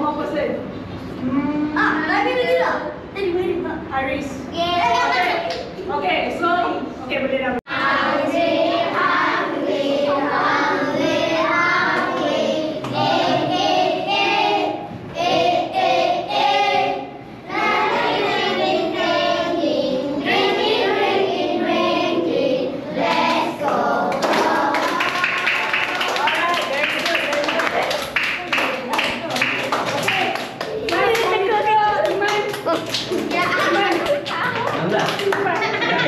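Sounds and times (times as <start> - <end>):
children singing: 7.7 - 25.5.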